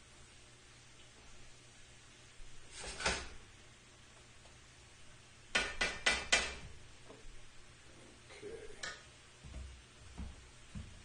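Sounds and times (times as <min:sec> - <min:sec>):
utensil knocking against frying pan: 0:05.5 - 0:06.6.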